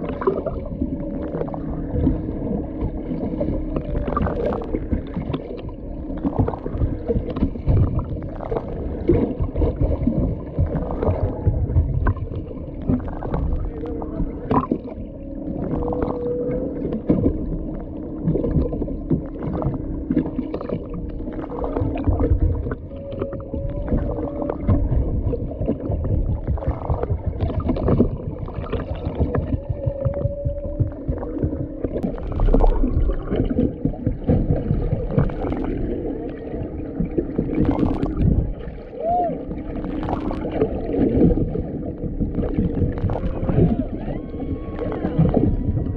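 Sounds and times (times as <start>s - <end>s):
crackle and knocking of water: 0.0s - 45.9s
steady low hum: 0.0s - 45.9s
whale moans underwater: 0.0s - 45.9s.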